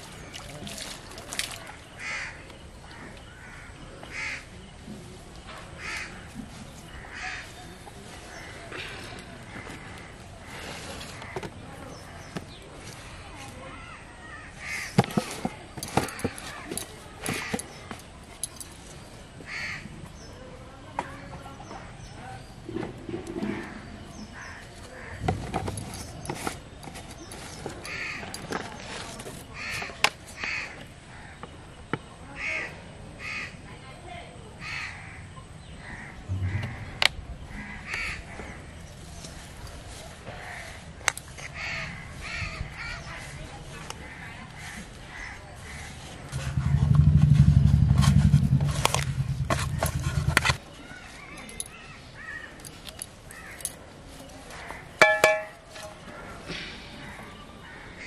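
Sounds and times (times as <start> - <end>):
crows cawing: 2.0 - 2.4, 3.0 - 4.5, 5.8 - 6.2, 14.3 - 14.9, 19.5 - 19.8, 27.8 - 28.3, 29.6 - 31.4, 32.4 - 33.6, 34.6 - 38.8, 41.5 - 43.2, 57.0 - 58.0
metal bowl and plastic jar clinking: 55.0 - 56.0.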